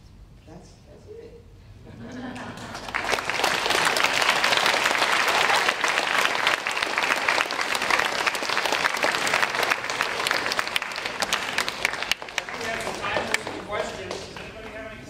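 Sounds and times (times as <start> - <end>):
audience applauding: 2.4 - 15.0.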